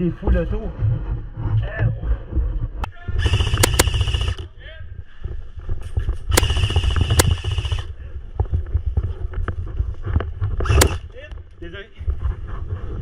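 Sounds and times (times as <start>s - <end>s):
airsoft rifle automatic burst: 3.2s - 4.5s, 6.3s - 7.9s, 10.6s - 11.0s
rifle clicks: 3.2s - 4.5s, 6.3s - 7.9s, 10.6s - 11.1s
airsoft single shots: 3.3s - 4.4s.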